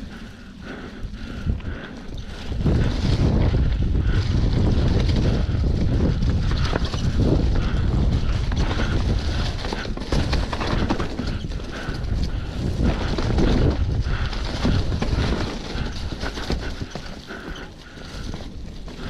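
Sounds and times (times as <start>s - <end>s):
bike knocking and rattling: 0.0s - 19.0s
wind rumbling on microphone: 0.0s - 19.0s.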